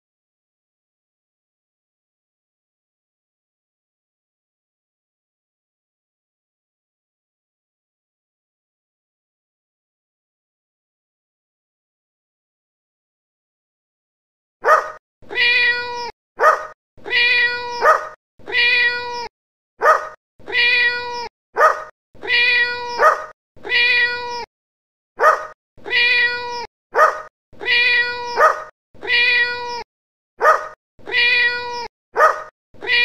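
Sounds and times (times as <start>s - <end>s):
dog yelp: 14.6s - 15.0s, 16.4s - 18.2s, 19.8s - 20.2s, 21.6s - 21.9s, 22.6s - 23.4s, 25.2s - 29.2s, 30.4s - 30.8s, 31.4s - 33.0s
cat meow: 14.6s - 24.5s, 25.2s - 33.0s.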